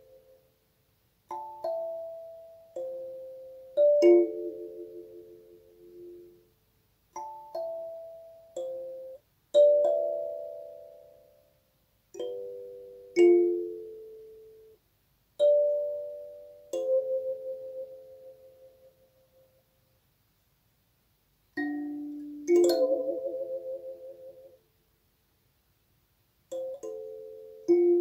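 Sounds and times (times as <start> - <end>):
kalimba chords plucked: 21.6 - 24.5.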